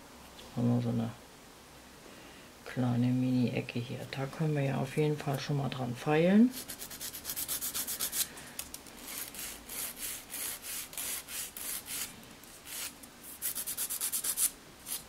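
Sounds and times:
nail file rasping: 6.6 - 8.3, 9.0 - 15.0.

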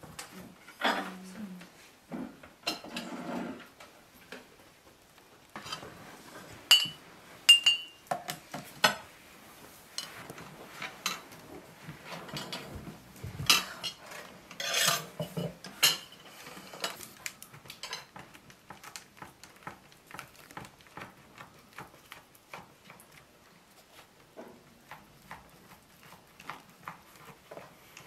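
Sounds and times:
dishes and cutlery clinking: 2.6 - 3.7, 5.6 - 9.1, 12.0 - 17.0.

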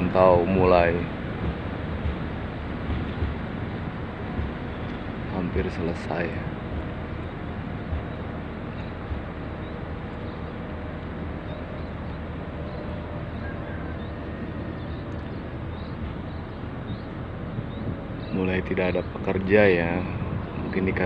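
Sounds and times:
vehicle rumble and hiss: 0.0 - 21.0.

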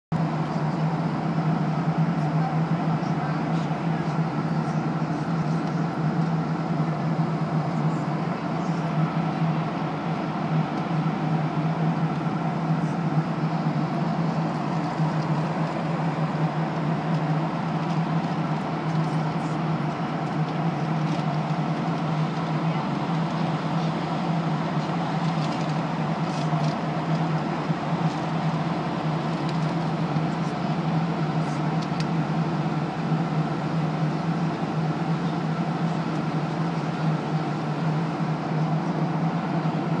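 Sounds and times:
airliner cabin noise: 0.2 - 40.0.

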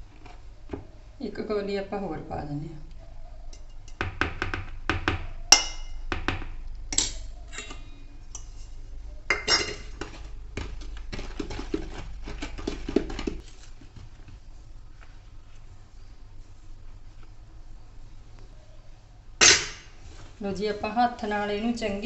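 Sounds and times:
spoon clinking in steel bowl: 7.0 - 10.0
spoon scraping plastic bowl: 9.7 - 14.0.

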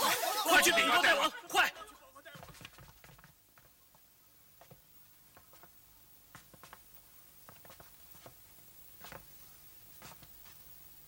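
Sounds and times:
faint clicks and taps: 2.4 - 10.7.

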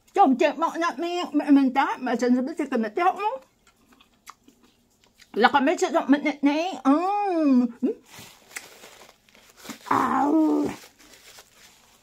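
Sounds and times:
faint chewing: 3.4 - 5.4.

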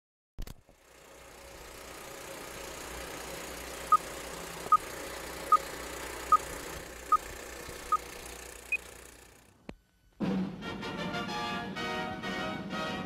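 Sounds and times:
film projector whirring: 0.4 - 9.7.

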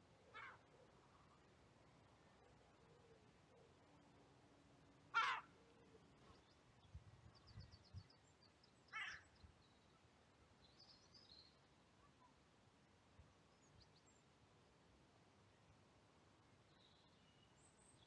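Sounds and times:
crow cawing: 0.3 - 0.6, 5.1 - 5.5, 8.9 - 9.2.

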